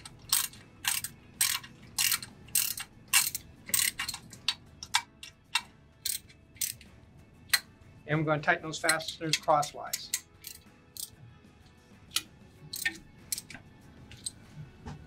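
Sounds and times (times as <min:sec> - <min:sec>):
ratchet wrench clicking: 0:00.0 - 0:06.9, 0:08.9 - 0:11.2, 0:12.1 - 0:14.3.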